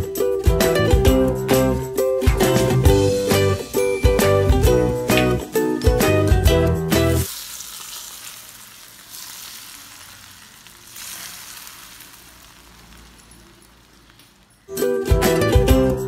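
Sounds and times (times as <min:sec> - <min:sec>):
strummed ukulele music: 0:00.0 - 0:07.3, 0:14.7 - 0:16.0
hot oil sizzling: 0:06.6 - 0:15.6.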